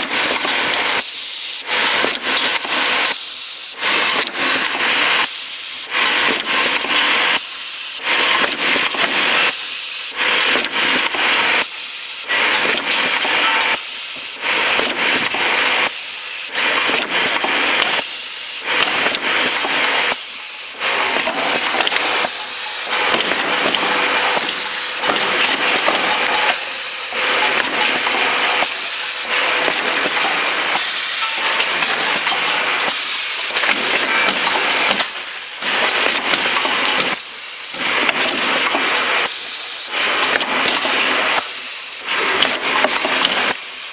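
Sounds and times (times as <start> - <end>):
machine clattering: 0.0 - 43.9.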